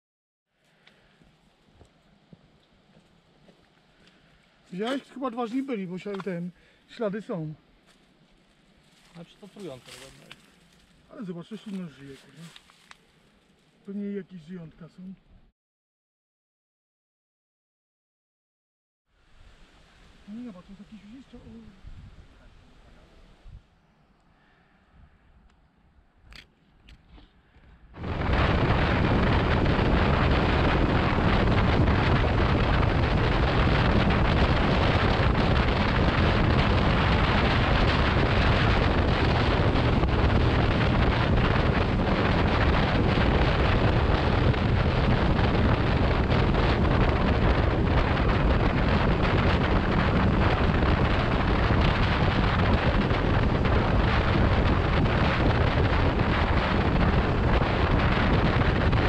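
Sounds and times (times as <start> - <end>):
wind buffeting microphone: 21.1 - 23.7, 27.8 - 59.0
motorcycle engine and road noise: 28.0 - 59.0.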